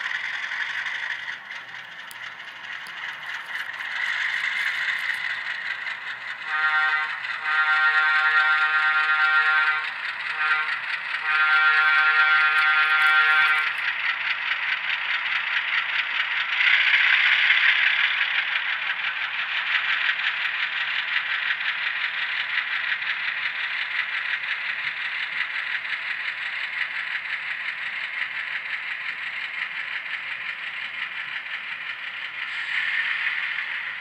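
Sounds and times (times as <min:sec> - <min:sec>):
model train wheels clattering: 0:00.0 - 0:34.0.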